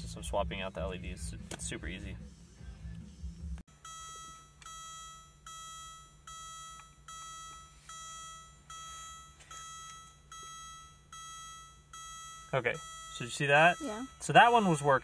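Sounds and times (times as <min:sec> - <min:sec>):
dashboard warning chime beeping: 0:03.7 - 0:15.0.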